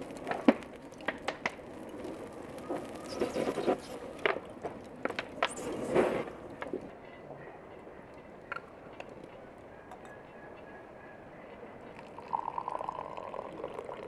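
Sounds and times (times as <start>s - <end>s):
wood fire crackling: 0.0s - 7.1s.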